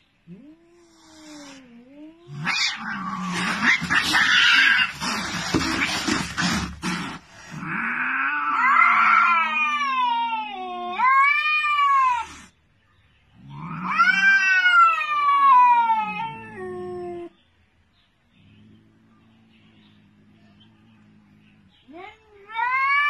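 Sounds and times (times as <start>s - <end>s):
cat yowling: 0.3s - 6.3s, 7.6s - 12.5s, 13.5s - 17.4s, 21.8s - 23.0s.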